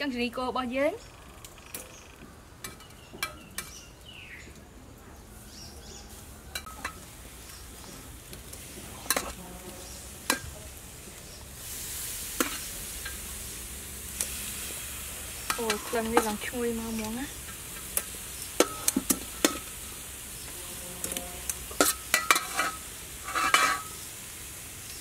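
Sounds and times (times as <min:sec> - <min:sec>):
ribs sizzling on a grill: 0:05.2 - 0:25.0
metal tongs clicking on grate: 0:17.0 - 0:19.7, 0:21.0 - 0:23.9.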